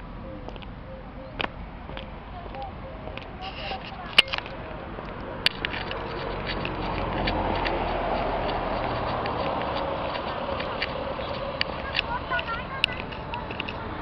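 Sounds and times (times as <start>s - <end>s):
sharp click: 4.1s - 4.6s, 5.4s - 9.8s
car driving past: 4.6s - 12.4s.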